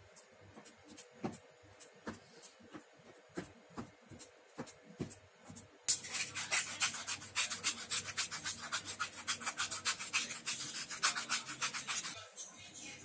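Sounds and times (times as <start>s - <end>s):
grinder rasping: 5.9s - 12.2s.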